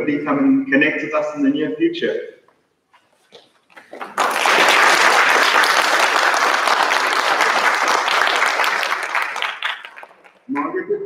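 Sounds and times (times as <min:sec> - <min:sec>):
children applauding: 0:03.8 - 0:10.7.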